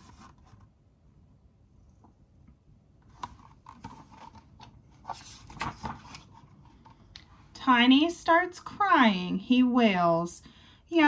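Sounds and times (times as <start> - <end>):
book pages rustling and turning: 0.0 - 0.8, 3.0 - 7.1.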